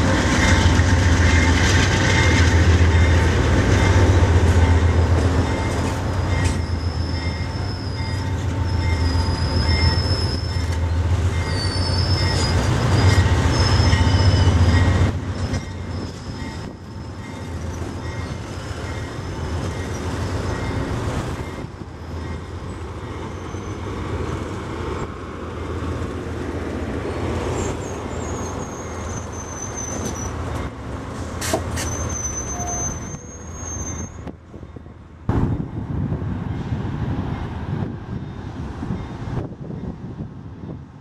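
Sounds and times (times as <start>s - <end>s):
train cars rumbling past: 0.0s - 41.0s
high wheel squeals: 5.4s - 20.8s, 23.2s - 24.0s, 27.6s - 34.3s.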